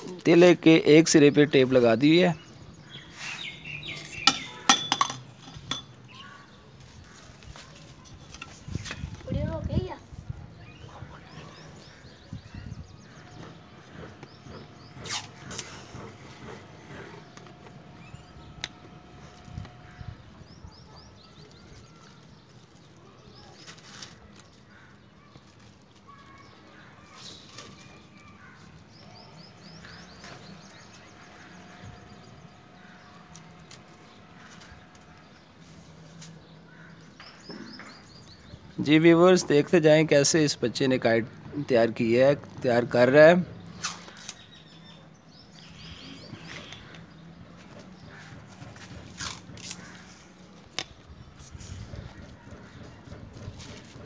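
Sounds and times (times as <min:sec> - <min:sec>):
hard objects clicking and clinking: 0:04.3 - 0:06.1.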